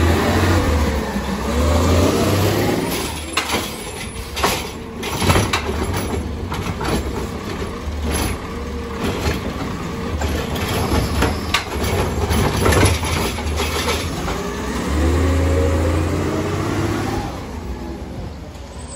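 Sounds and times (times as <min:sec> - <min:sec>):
engine revving: 0:00.0 - 0:03.1, 0:14.1 - 0:17.7
garbage truck engine running: 0:00.0 - 0:18.6
cart and arm clanking: 0:02.5 - 0:16.0.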